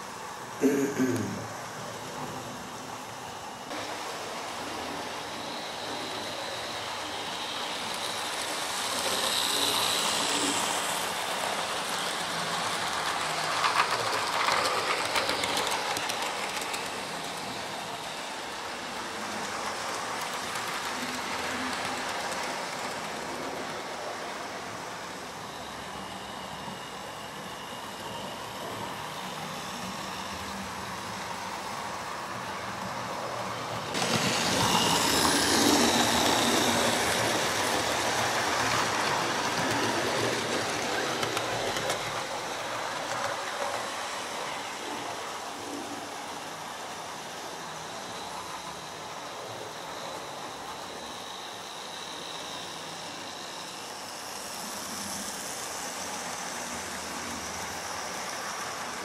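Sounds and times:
model train motor whirring: 0.0 - 59.0.

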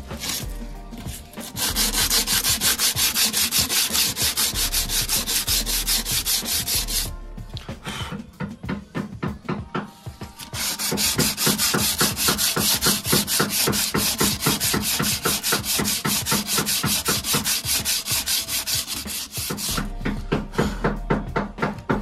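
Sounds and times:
sandpaper scraping metal rim: 0.0 - 7.1, 10.4 - 19.9.

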